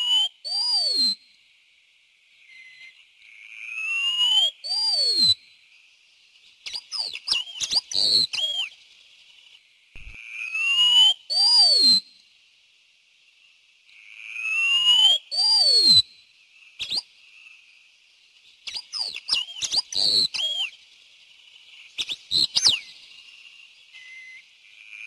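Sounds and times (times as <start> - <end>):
bird singing whistled phrases: 0.0 - 1.2, 3.8 - 5.5, 6.6 - 8.8, 10.5 - 12.2, 14.5 - 16.1, 16.8 - 17.1, 18.6 - 20.8, 22.0 - 22.9, 23.9 - 24.4.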